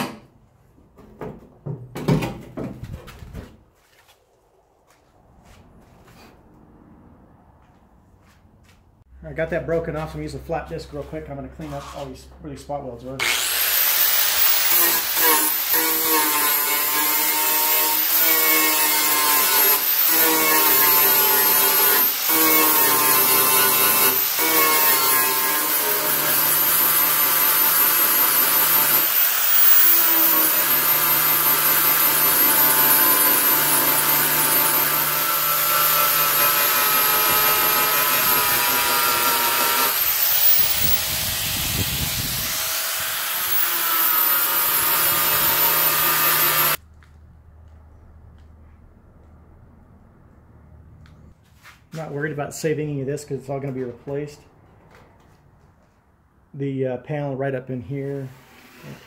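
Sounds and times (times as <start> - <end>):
angle grinder whining on metal: 13.2 - 46.8.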